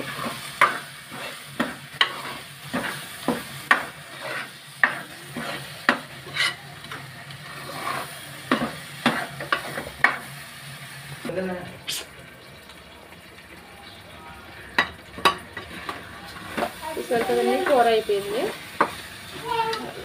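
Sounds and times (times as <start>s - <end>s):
light sizzle: 0.0s - 20.0s
metal spoon scraping pot: 4.1s - 6.6s.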